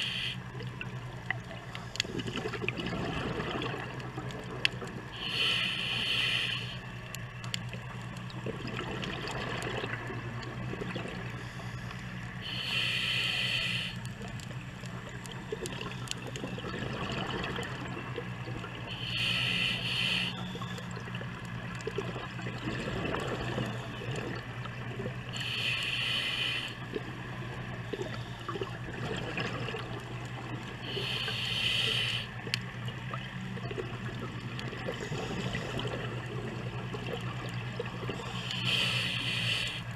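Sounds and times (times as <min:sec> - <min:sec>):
low hum and hiss: 0:00.0 - 0:39.9
exhaled bubbles underwater: 0:00.5 - 0:05.4, 0:07.7 - 0:11.5, 0:14.0 - 0:39.9.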